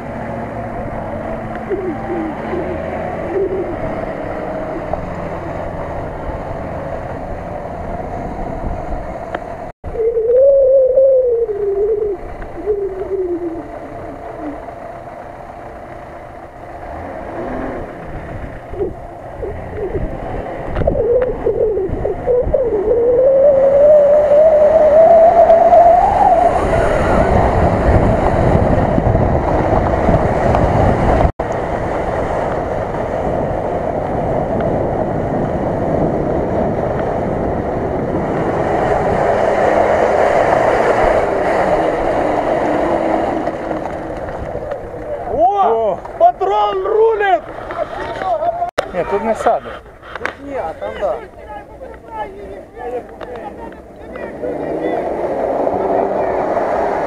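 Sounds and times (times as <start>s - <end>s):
wheels churning mud: 11.8s - 57.0s
engine revving hard: 16.8s - 20.9s, 23.5s - 44.5s, 53.1s - 57.0s.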